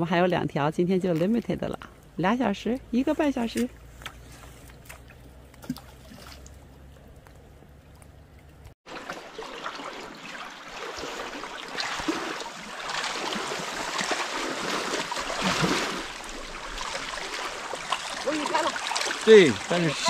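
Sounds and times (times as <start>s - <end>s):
river water splashing around legs: 3.6s - 8.2s, 8.9s - 20.0s.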